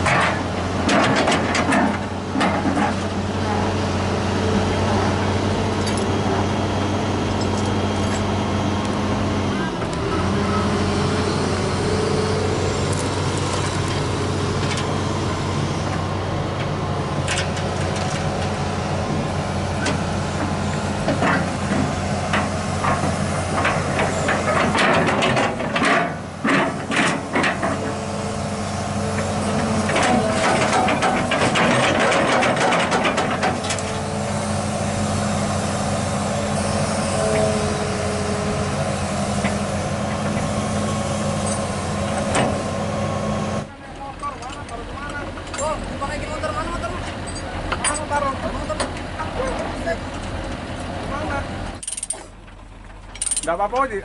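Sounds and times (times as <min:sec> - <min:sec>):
diesel engine running: 0:00.0 - 0:54.0
steel tracks clanking on ramps: 0:19.8 - 0:34.1.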